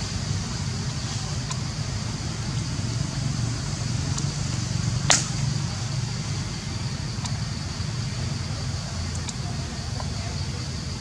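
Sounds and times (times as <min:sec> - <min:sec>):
high hiss: 0:00.0 - 0:11.0
road traffic rumble: 0:00.0 - 0:11.0
sharp click: 0:05.1 - 0:05.4.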